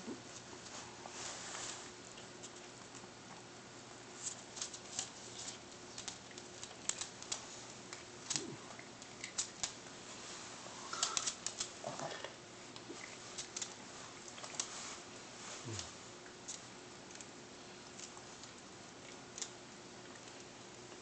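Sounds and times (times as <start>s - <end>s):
dog chewing on bone: 2.1s - 10.0s.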